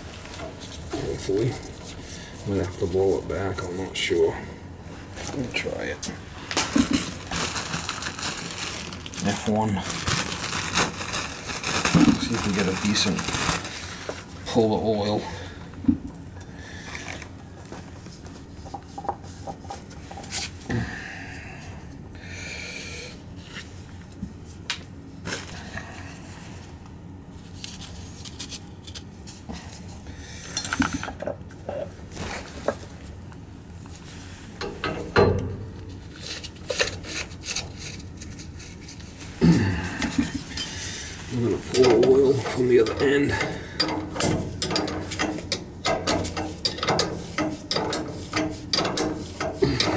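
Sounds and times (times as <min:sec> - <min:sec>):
plastic packaging rustling: 0:06.4 - 0:14.6
metal parts clinking and scraping: 0:41.6 - 0:49.9.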